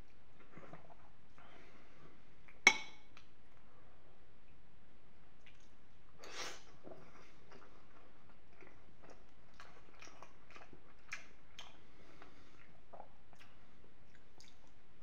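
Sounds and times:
close-miked chewing: 6.7s - 14.8s.

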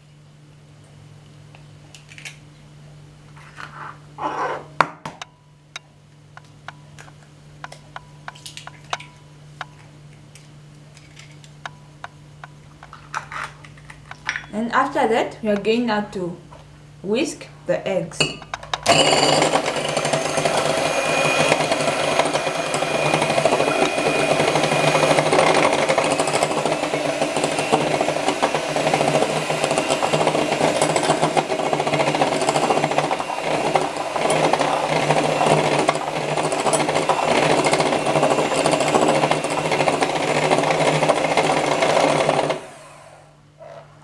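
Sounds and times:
electric mixer whisking eggs: 18.7s - 43.4s.

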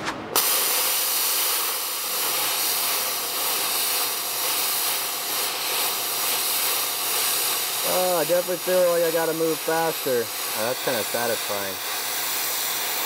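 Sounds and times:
plasma cutter hissing: 0.3s - 13.0s.

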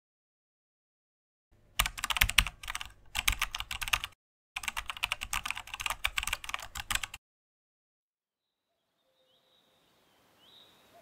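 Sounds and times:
keyboard typing clicks: 1.8s - 7.2s.

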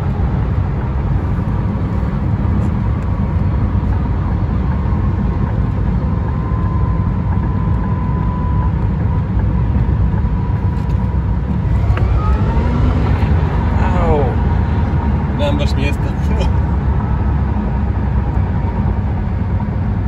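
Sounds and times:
tyre and road rumble: 0.0s - 20.0s
electric motor whine: 11.5s - 13.7s.

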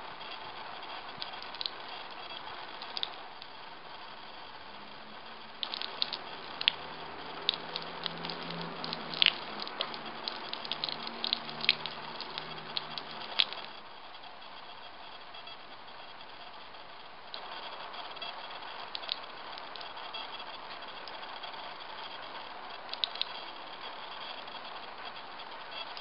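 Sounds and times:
water splashing over stone slab: 5.6s - 13.6s.

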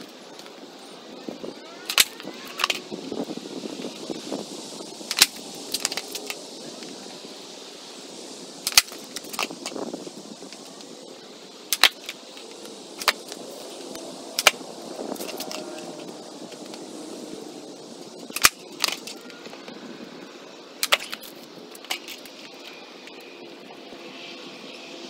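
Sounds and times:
skateboard cracking on concrete: 1.6s - 4.1s, 5.0s - 7.0s, 8.6s - 11.0s, 11.7s - 17.3s, 18.2s - 19.6s, 20.8s - 23.3s.

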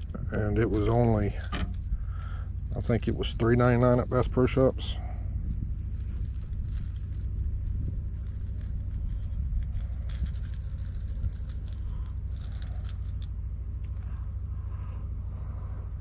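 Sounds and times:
steady low rumble: 0.0s - 16.0s
plastic fishing lure rattling: 5.4s - 13.4s.

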